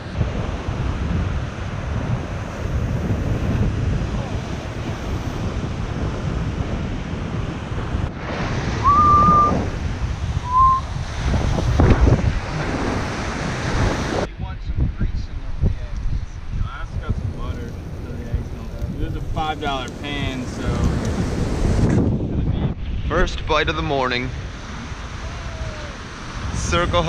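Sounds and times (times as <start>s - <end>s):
surf breaking on beach: 0.0s - 14.3s, 17.0s - 27.0s
wind buffeting microphone: 0.0s - 27.0s
short high whistle tones: 8.8s - 9.6s, 10.4s - 10.9s.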